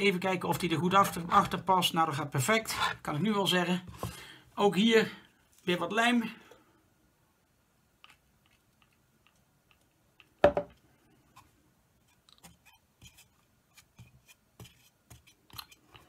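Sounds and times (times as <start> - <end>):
glue brush dabbing plastic: 7.9 - 16.0.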